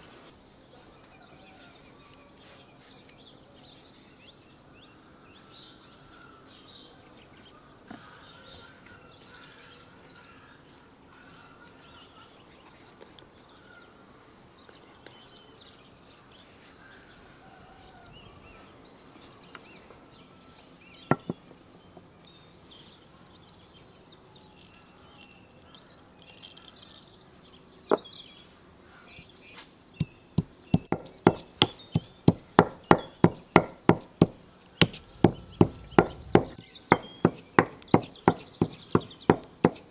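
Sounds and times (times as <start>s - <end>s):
birds chirping: 0.0s - 39.9s
pestle pounding in mortar: 30.0s - 39.9s.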